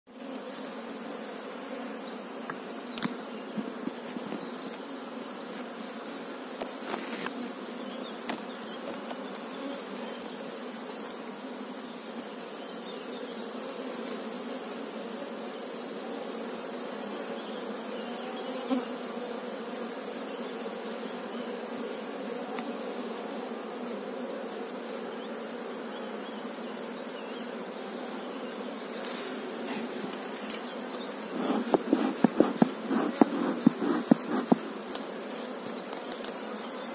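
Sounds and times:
honeybee colony humming: 0:00.1 - 0:36.9
wooden hive frames knocking: 0:31.3 - 0:34.8.

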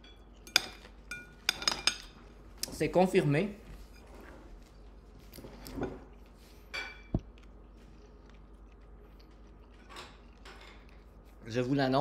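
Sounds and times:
person chewing food: 0:04.6 - 0:11.4.

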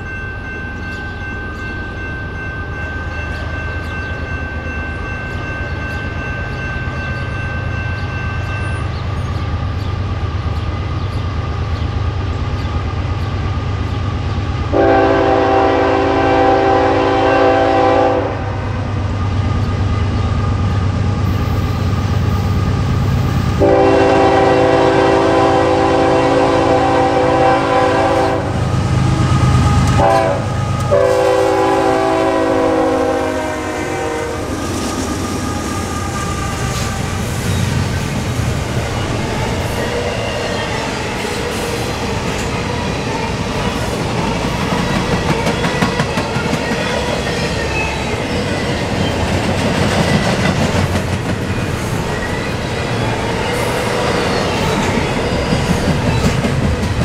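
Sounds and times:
train horn: 0:14.7 - 0:18.9, 0:23.5 - 0:37.4
locomotive engine rumble: 0:18.8 - 0:45.5
train wheels clattering on rails: 0:34.5 - 0:57.0.

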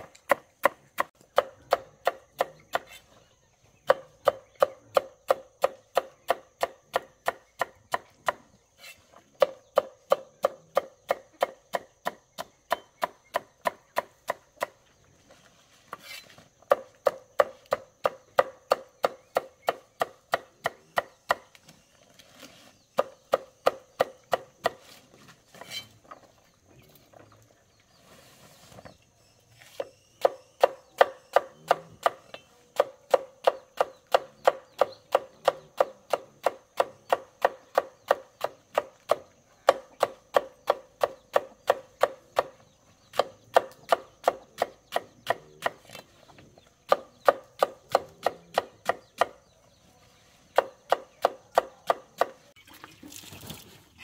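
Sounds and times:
knife chopping on wooden board: 0:50.5 - 0:52.4.

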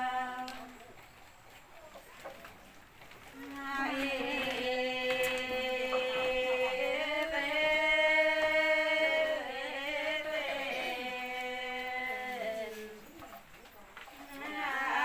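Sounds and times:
person chanting held notes: 0:00.0 - 0:01.2, 0:03.3 - 0:15.0.

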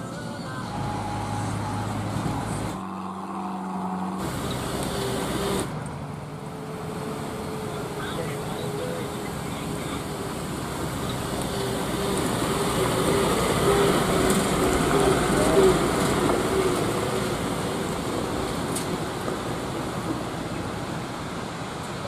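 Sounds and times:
truck diesel engine passing: 0:00.0 - 0:22.0.

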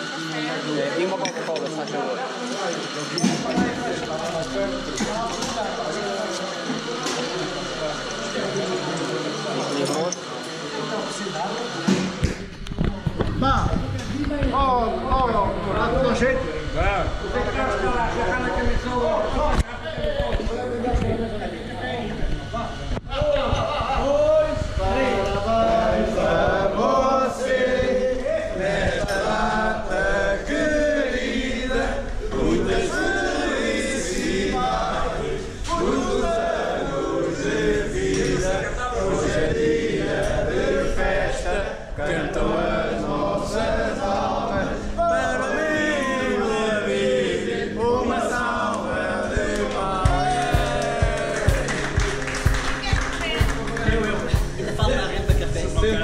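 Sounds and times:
men singing in unison: 0:24.1 - 0:52.5
rhythmic hand claps: 0:48.7 - 0:55.4.

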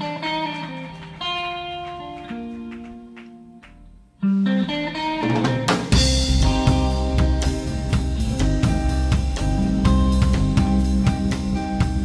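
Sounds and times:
plucked guitar notes: 0:00.0 - 0:12.0
drum kit beat: 0:05.0 - 0:12.0.

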